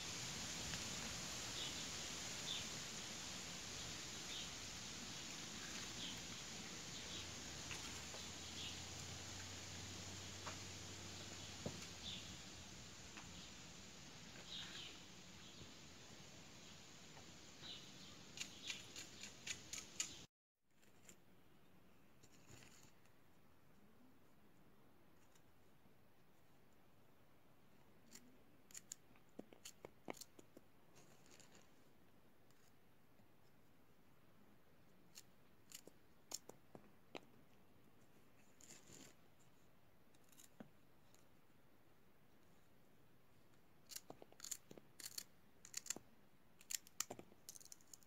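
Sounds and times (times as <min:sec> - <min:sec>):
faint clicks of okra pods: 0:17.6 - 0:20.3.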